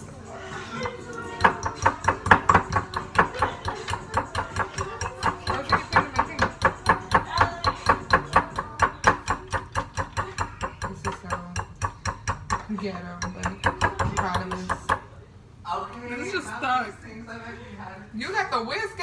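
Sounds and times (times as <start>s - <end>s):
utensil beating batter in bowl: 0.0s - 15.1s.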